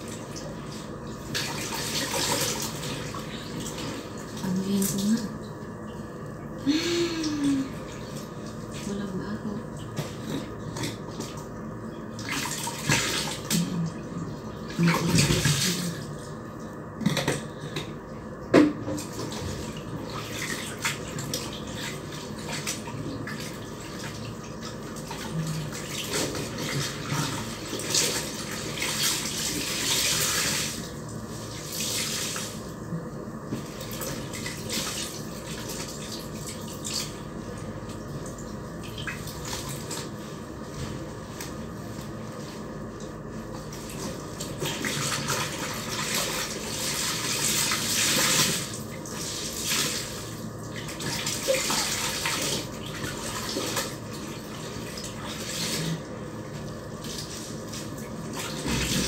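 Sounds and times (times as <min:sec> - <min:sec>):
clothes splashing in soapy water: 0:00.0 - 0:05.3, 0:12.2 - 0:16.3, 0:19.0 - 0:32.7, 0:33.6 - 0:37.4, 0:38.8 - 0:59.0.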